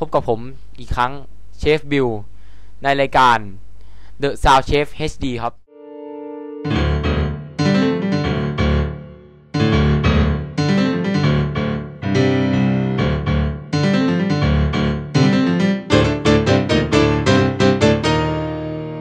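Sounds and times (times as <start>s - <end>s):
piano chords: 5.7s - 19.0s.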